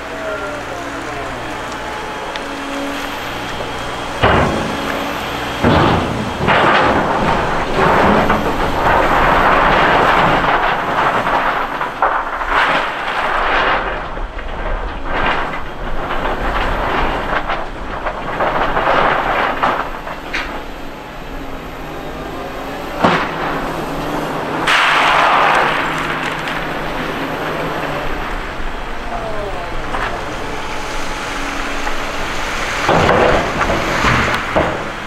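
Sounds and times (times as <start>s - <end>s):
low engine hum: 0.0s - 12.6s, 13.3s - 35.0s.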